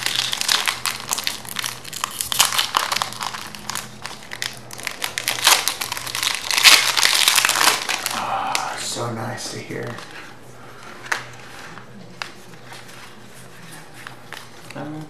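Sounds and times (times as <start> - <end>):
foil wrapper crinkling: 0.0 - 15.0.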